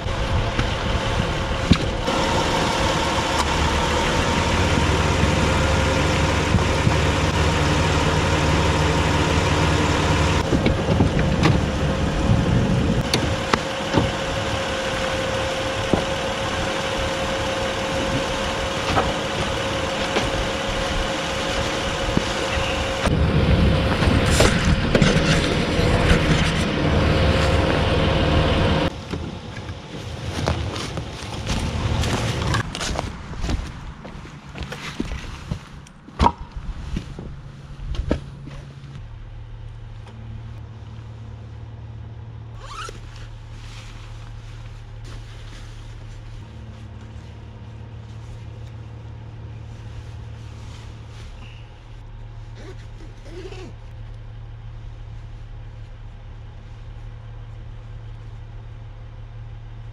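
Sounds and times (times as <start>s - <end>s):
gear knocking and clunking: 0.0s - 8.8s, 10.0s - 39.1s
steady low rumble: 0.0s - 59.9s.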